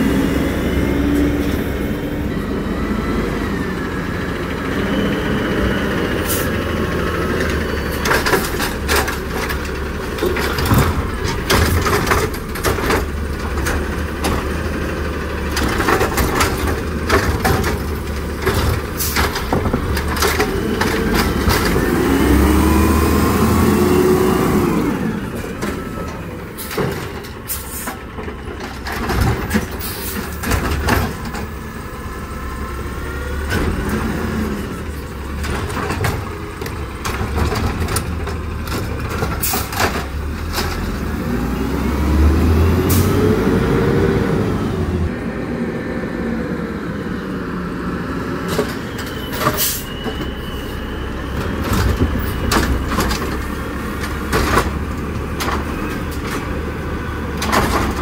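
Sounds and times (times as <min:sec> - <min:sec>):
garbage truck engine running: 0:00.0 - 0:58.0
carts clacking and banging: 0:06.2 - 0:22.8, 0:24.8 - 0:31.7, 0:33.3 - 0:41.3, 0:48.4 - 0:58.0
air brakes hissing: 0:27.5 - 0:28.0, 0:29.8 - 0:30.2, 0:48.8 - 0:51.0.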